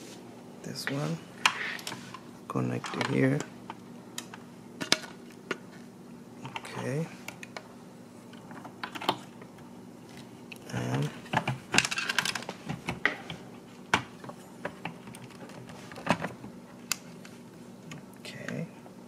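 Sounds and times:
plastic clicks and clatter: 8.4 - 9.3, 11.0 - 17.0.

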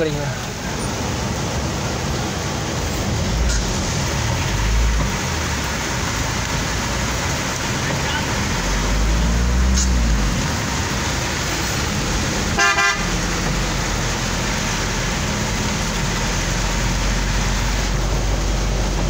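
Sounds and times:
heavy rain and wet road noise: 0.0 - 19.0
vehicle horn toot: 12.6 - 13.1.

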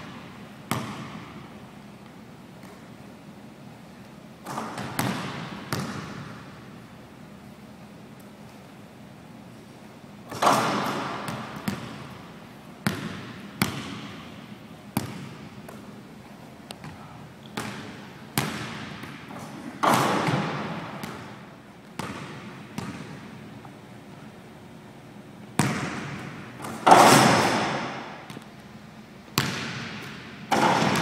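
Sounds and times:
basketball bouncing on hardwood floor: 0.0 - 1.3, 4.5 - 6.4, 10.3 - 12.1, 12.8 - 14.2, 15.0 - 15.8, 17.6 - 19.2, 19.8 - 21.3, 22.0 - 23.2, 25.6 - 28.5, 29.4 - 31.0.

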